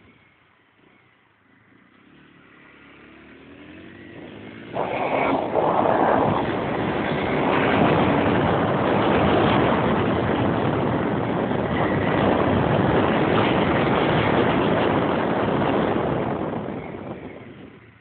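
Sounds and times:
motorcycle engine: 0.2s - 18.0s
wind rushing over microphone: 3.6s - 18.0s.

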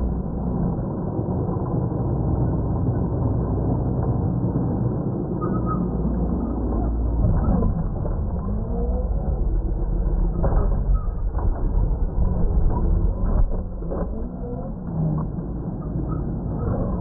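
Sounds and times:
low rumble: 0.0s - 17.0s.

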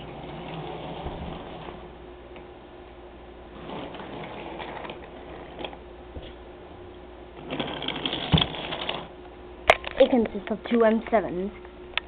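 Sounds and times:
toy train motor whirring: 3.6s - 5.8s, 7.4s - 9.1s
toy train wheels rattling: 7.4s - 9.1s.

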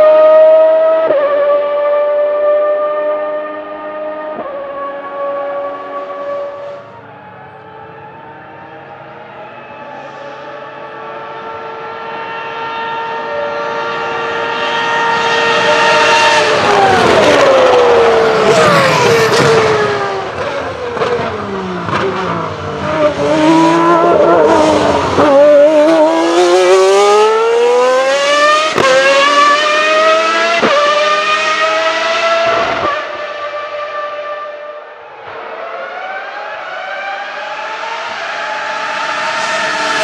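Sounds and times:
second racing car engine: 0.0s - 40.0s
racing car engine screaming: 14.0s - 32.8s.

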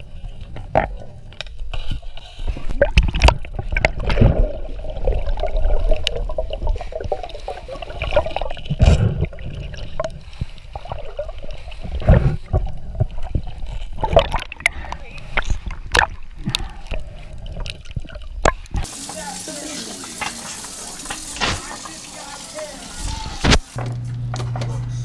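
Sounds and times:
knocks and scrapes underwater: 0.0s - 18.8s
underwater rumbling gurgling water: 2.4s - 18.8s.

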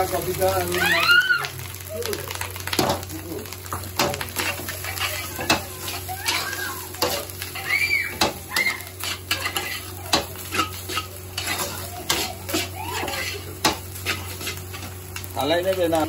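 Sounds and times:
frying sizzle: 0.0s - 16.0s
metal spatula scraping a wok: 4.0s - 8.4s, 9.0s - 15.0s.

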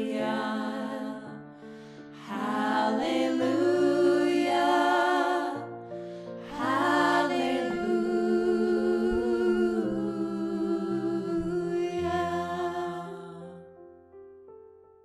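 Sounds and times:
woman singing with vibrato: 6.5s - 13.5s.

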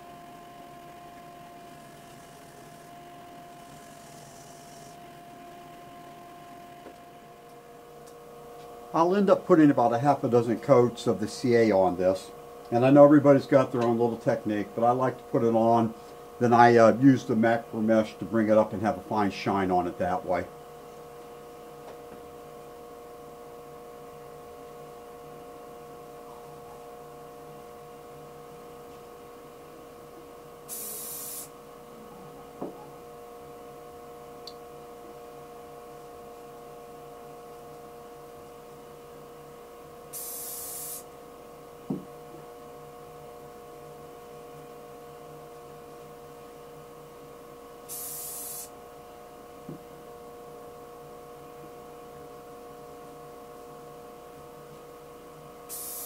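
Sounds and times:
wood lathe motor hum: 0.0s - 8.1s
short hisses: 30.7s - 31.5s, 40.1s - 41.1s, 47.9s - 48.7s, 55.7s - 56.0s.

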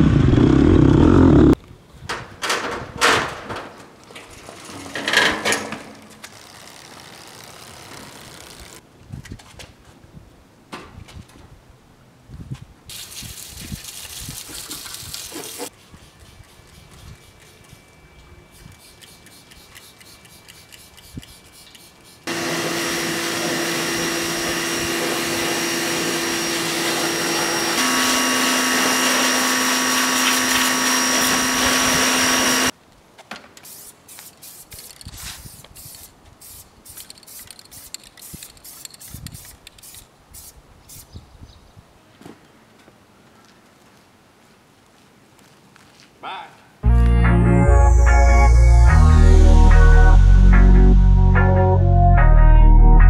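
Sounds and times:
pressure washer spraying: 18.6s - 32.7s, 33.6s - 41.1s
clicks and handling sounds: 32.9s - 36.0s, 36.9s - 40.1s.

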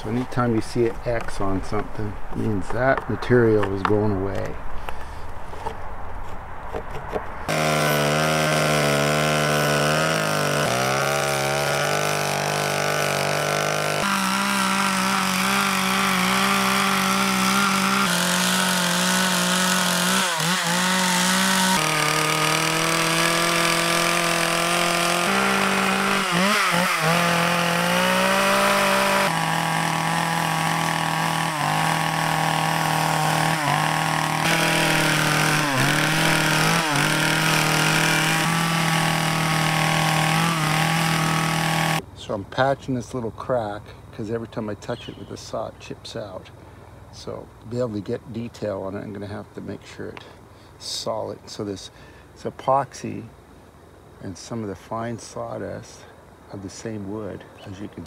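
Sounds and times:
chainsaw cutting wood: 6.7s - 42.0s.

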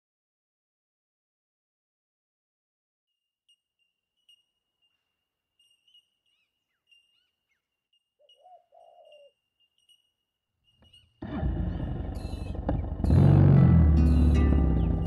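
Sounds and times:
faint birds calling: 3.2s - 15.0s.

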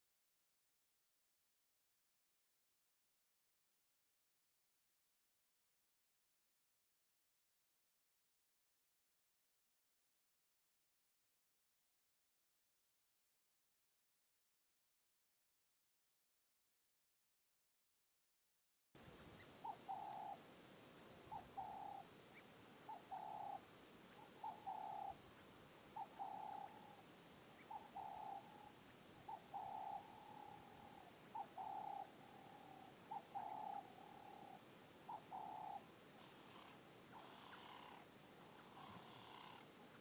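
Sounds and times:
high bird calls: 19.3s - 20.5s, 21.2s - 40.0s
dove cooing: 19.4s - 20.5s, 21.2s - 25.2s, 25.9s - 40.0s.

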